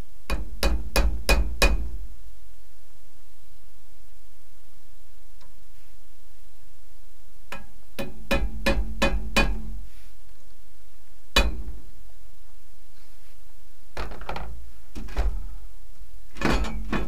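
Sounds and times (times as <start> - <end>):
steady low hum: 0.0 - 17.0
hammer strikes on metal: 0.3 - 1.9, 7.5 - 9.8, 11.3 - 11.8.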